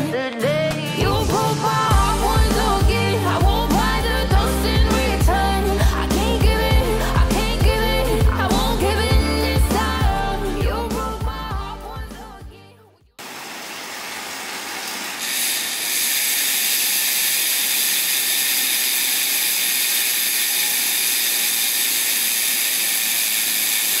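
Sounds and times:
bike tyres whirring on rollers: 13.4s - 24.0s.

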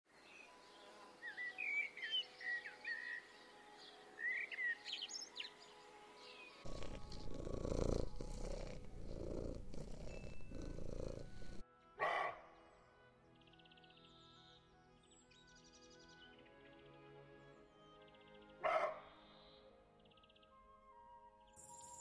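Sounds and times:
songbird chirping: 0.1s - 11.6s
cat purring: 6.6s - 11.6s.

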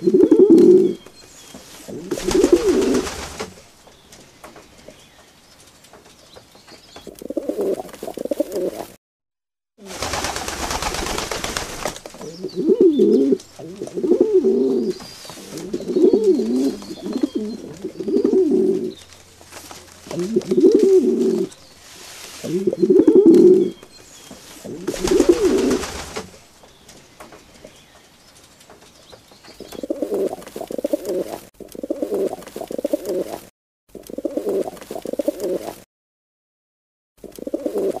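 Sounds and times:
pigeons cooing: 0.0s - 1.1s, 1.9s - 3.2s, 7.1s - 8.9s, 12.2s - 19.0s, 20.0s - 21.6s, 22.4s - 23.8s, 24.6s - 26.0s, 29.6s - 35.8s, 37.2s - 38.0s.

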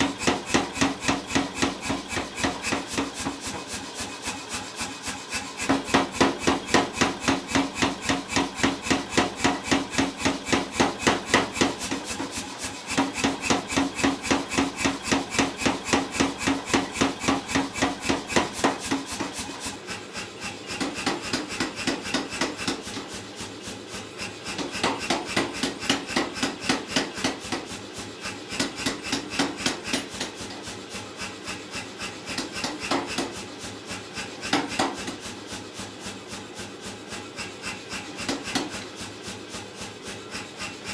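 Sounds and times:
power hammer pounding steel: 0.0s - 40.9s.

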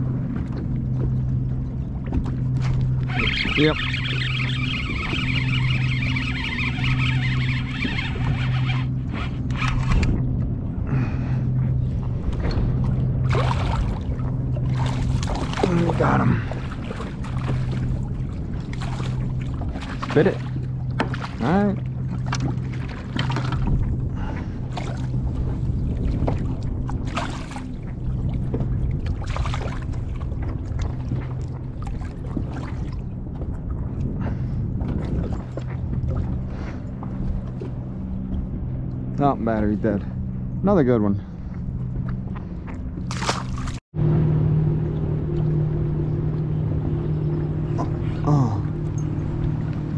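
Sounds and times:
water lapping against kayak hull: 0.0s - 43.9s
steady low hum: 0.0s - 49.9s
fishing reel rasping: 3.1s - 10.1s
water splashes: 11.9s - 40.1s, 41.2s - 49.9s.

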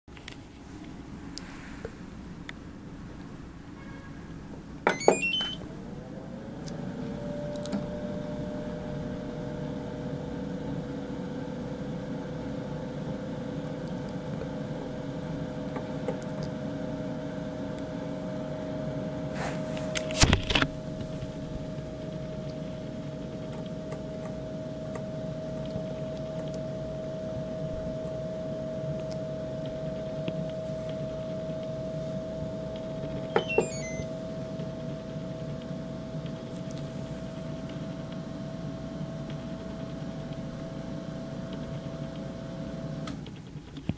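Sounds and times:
dehydrator fan whine and hum: 0.1s - 43.9s
electronic beeps: 4.9s - 5.6s, 33.4s - 34.1s.

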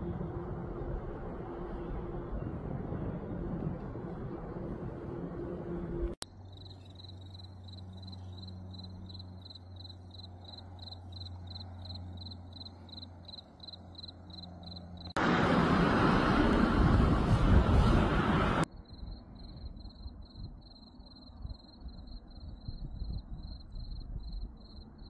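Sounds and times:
crickets chirping: 6.2s - 15.2s, 18.7s - 25.0s
loud rushing noise: 15.2s - 18.7s.

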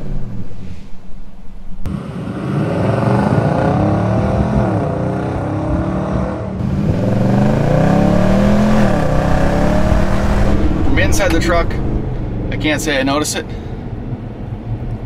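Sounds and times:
engine accelerating through gears: 1.8s - 12.7s.

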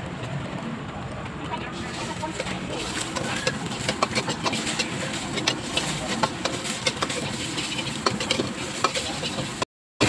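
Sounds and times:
gas burner rushing: 0.0s - 9.7s
food sizzling: 1.6s - 9.7s
metal ladle scraping a wok: 1.8s - 9.6s.

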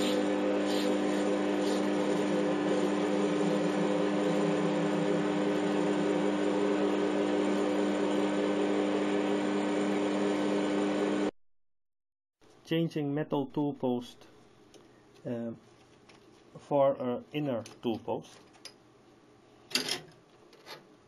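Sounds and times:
lathe machine humming: 0.0s - 11.3s.

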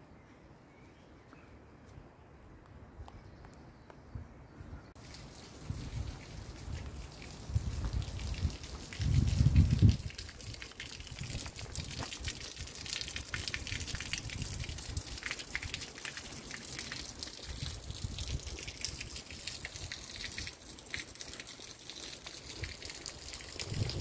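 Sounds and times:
rain drips: 5.0s - 24.0s
water splashing from a spout: 5.0s - 24.0s.

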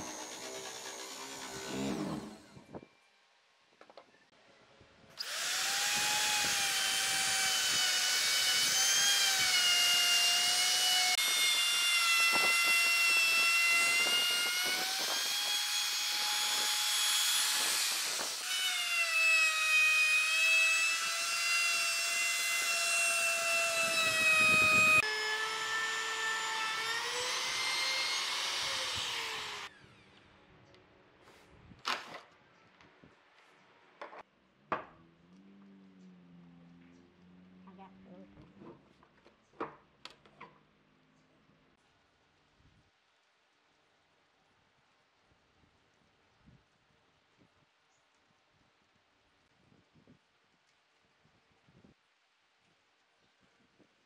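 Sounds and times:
electric router motor whine: 0.0s - 2.8s, 5.2s - 30.1s.

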